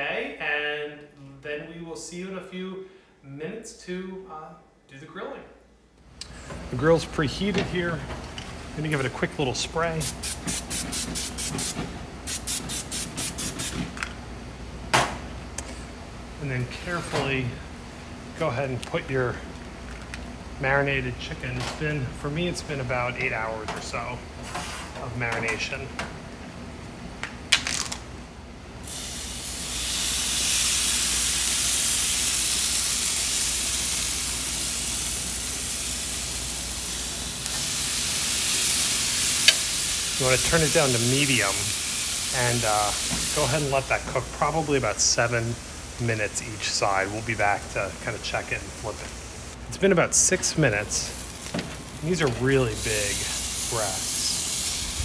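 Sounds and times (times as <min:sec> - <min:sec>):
cooking spray hissing in pulses: 0:10.0 - 0:13.8, 0:28.8 - 0:49.6, 0:50.6 - 0:55.0
chicken sizzling on a grill: 0:28.9 - 0:49.6, 0:50.7 - 0:55.0.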